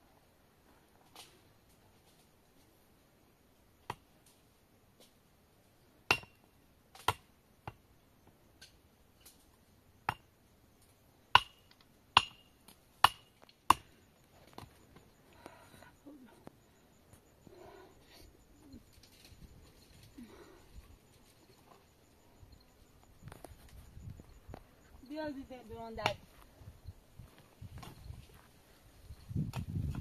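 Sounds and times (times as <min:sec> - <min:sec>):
metal tool striking stony ground: 0:06.1 - 0:06.4, 0:11.4 - 0:13.8.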